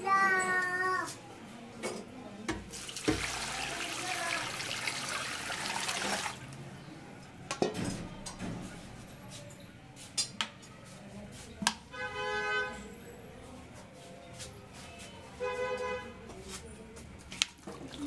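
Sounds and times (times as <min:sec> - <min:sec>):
water running into metal pot: 0:02.8 - 0:06.4.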